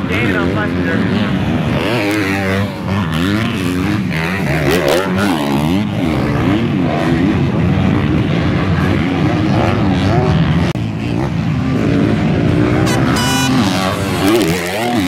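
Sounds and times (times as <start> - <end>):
motocross bike engines revving: 0.0 - 15.0.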